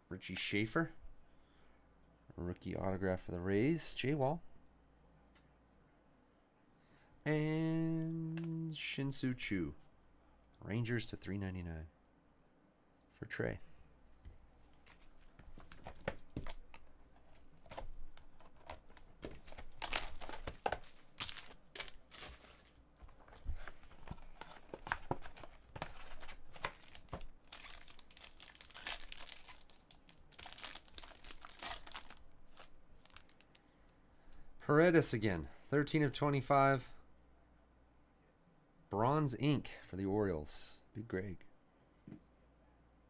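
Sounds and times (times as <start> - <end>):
plastic wrapping tearing and crinkling: 17.6 - 22.8, 24.2 - 33.6
cardboard box handling: 18.4 - 27.9.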